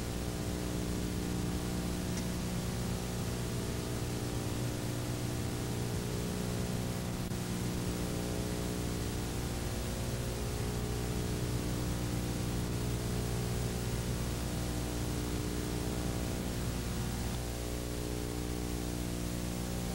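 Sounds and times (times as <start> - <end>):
low even hum: 0.0 - 19.9
steady hiss: 0.0 - 19.9.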